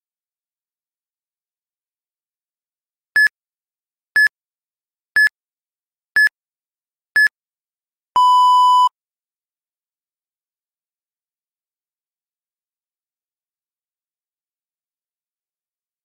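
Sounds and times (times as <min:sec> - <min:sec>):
long low timer beep: 0:08.2 - 0:08.9.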